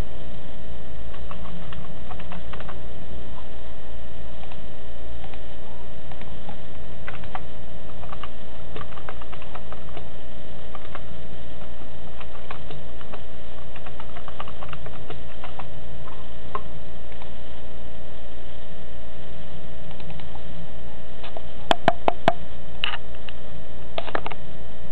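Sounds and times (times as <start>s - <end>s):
steady low hum: 0.0s - 24.9s
keyboard typing: 1.1s - 2.8s, 7.1s - 10.0s, 12.2s - 15.7s.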